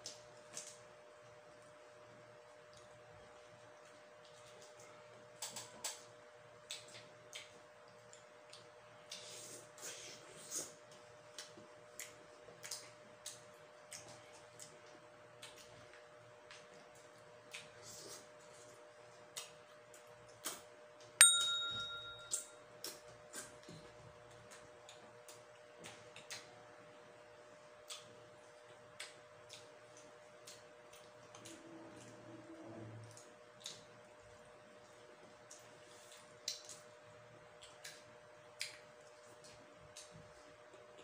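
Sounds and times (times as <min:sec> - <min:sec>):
chewing and eating: 0:00.0 - 0:20.9, 0:22.8 - 0:41.0
bell-like ding: 0:21.2 - 0:22.5
faint hum: 0:21.2 - 0:22.6.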